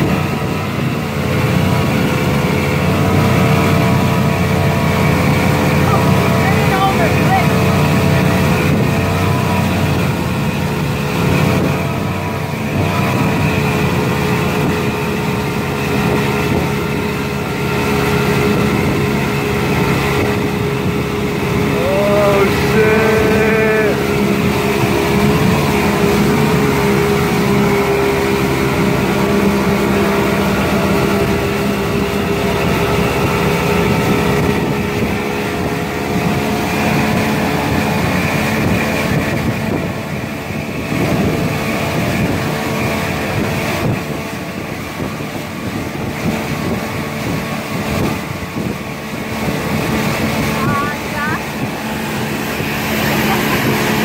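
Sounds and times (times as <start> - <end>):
outboard motor running: 0.0 - 54.0
rushing water: 0.0 - 54.0
wind: 0.0 - 54.0.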